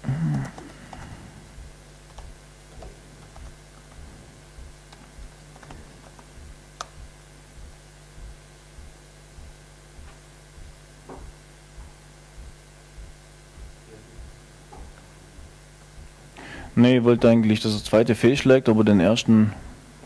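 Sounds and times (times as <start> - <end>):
laptop keyboard typing: 0.0 - 7.2
low electrical hum: 0.0 - 20.0
short low thump: 3.9 - 17.3.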